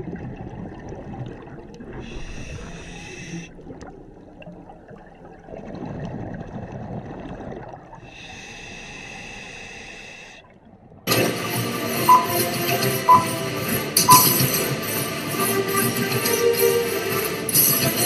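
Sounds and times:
exhaled bubbles underwater: 0:00.0 - 0:08.2
regulator hissing inhale: 0:02.1 - 0:03.5, 0:08.1 - 0:10.4.

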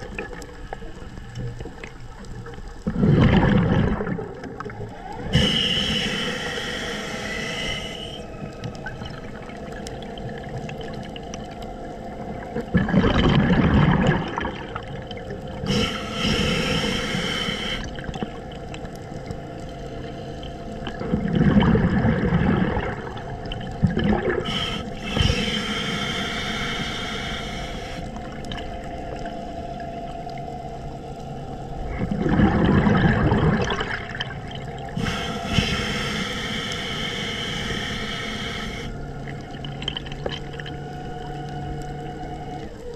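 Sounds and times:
exhaled bubbles gurgling underwater: 0:00.0 - 0:42.9
regulator inhalation hiss: 0:05.2 - 0:08.4, 0:15.6 - 0:18.0, 0:24.3 - 0:28.1, 0:34.9 - 0:39.0.

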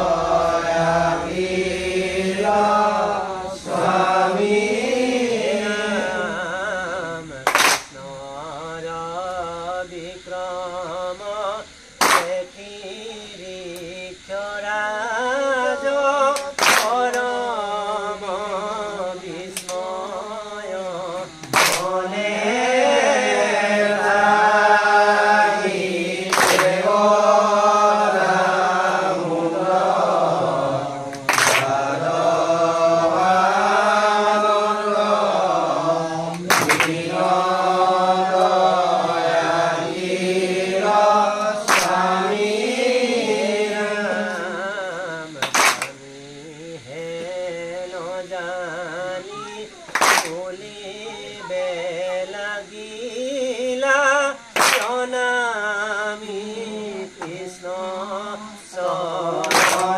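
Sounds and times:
voices chanting long sung lines: 0:00.0 - 0:59.9.

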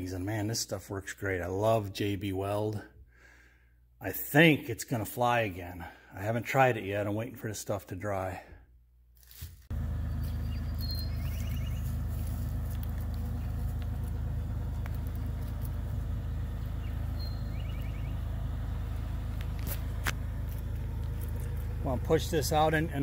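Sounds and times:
diesel engine idling: 0:09.7 - 0:23.0.

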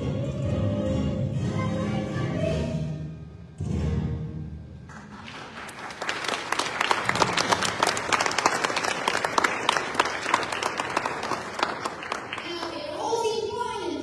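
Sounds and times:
audience applause: 0:04.9 - 0:13.4.

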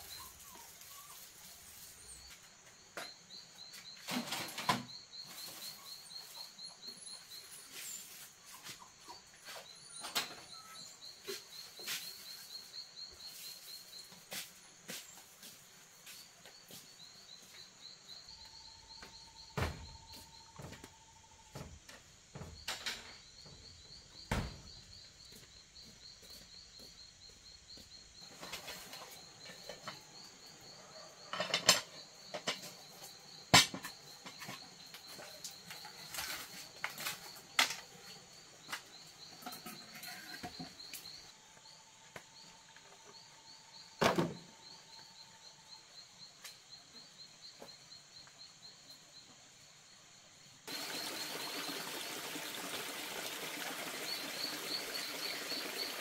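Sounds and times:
insects trilling: 0:00.0 - 0:56.0
flowing stream: 0:50.7 - 0:56.0.

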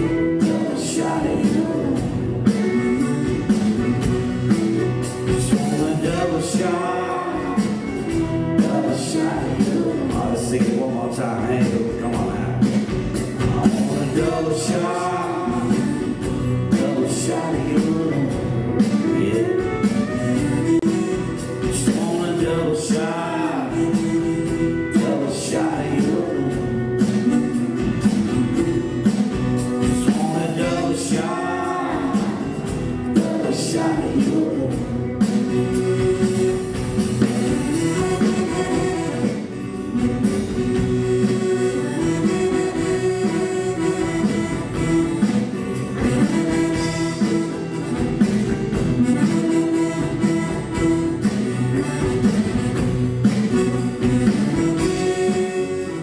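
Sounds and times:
acoustic guitar: 0:00.0 - 0:56.0
band playing live: 0:00.0 - 0:56.0
accordion: 0:12.8 - 0:56.0.

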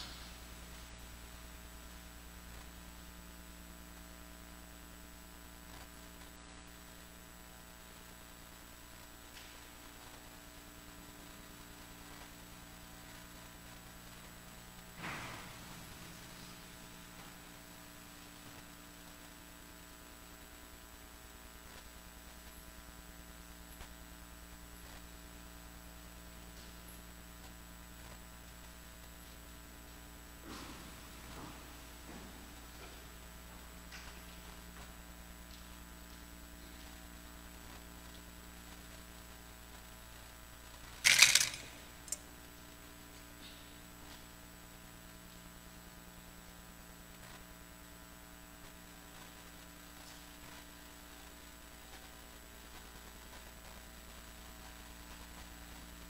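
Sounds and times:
low hiss: 0:00.0 - 0:03.1
electrical mains hum: 0:00.0 - 0:56.0.

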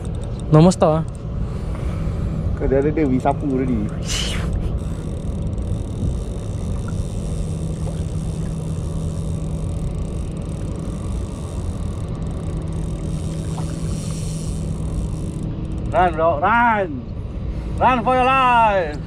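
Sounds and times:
boat engine idling: 0:00.0 - 0:19.0
wind: 0:00.0 - 0:19.0
water noise: 0:03.1 - 0:16.1.

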